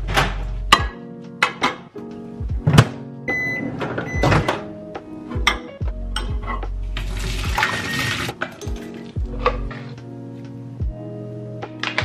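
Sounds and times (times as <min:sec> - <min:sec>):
background music with a beat: 0:00.0 - 0:12.0.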